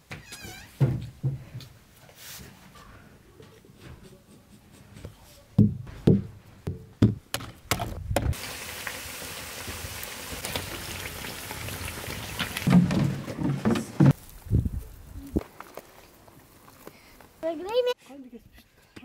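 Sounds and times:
wood fire hissing and crackling: 8.3s - 13.4s.

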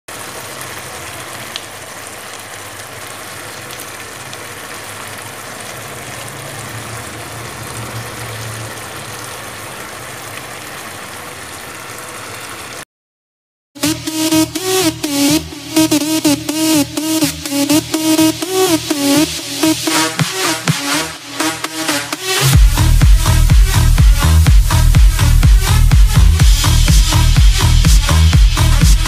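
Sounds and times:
wok sizzling and bubbling: 0.1s - 12.8s, 15.2s - 29.0s
electronic music with a beat: 13.8s - 29.0s.

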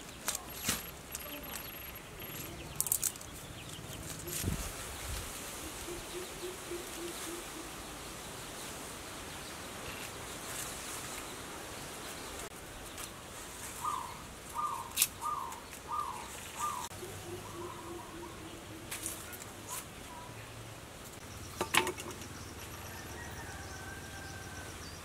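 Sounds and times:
birds calling: 0.0s - 8.6s, 9.3s - 25.0s
steady background hiss: 0.0s - 25.0s
short falling bird calls: 13.8s - 18.4s.

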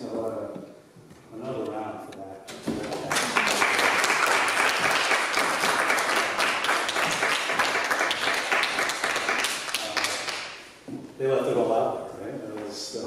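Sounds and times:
audience applauding: 2.8s - 10.6s.

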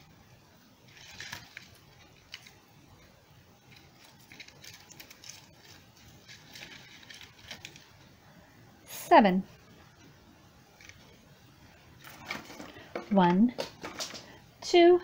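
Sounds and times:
ribbon rustling: 3.6s - 8.0s
twigs knocking together: 3.7s - 7.9s.

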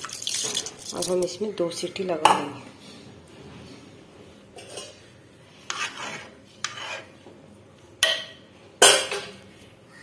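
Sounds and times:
metal spoon scraping a pot: 4.6s - 7.2s.

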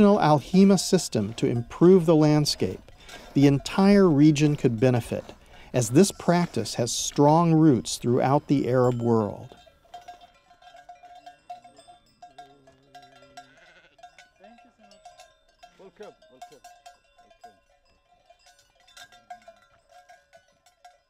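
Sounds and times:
livestock bells clanking: 0.0s - 21.0s
sheep bleating: 13.2s - 14.1s.

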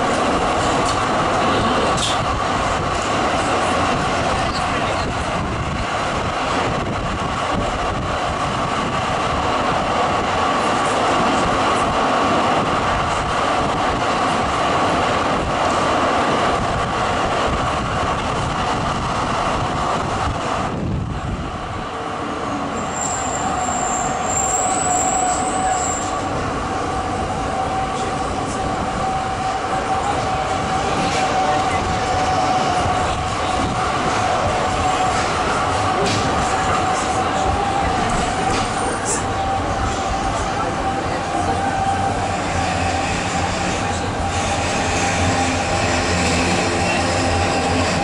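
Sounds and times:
tram rolling along rails: 0.0s - 48.0s
high thin wheel squeal: 22.8s - 26.2s.

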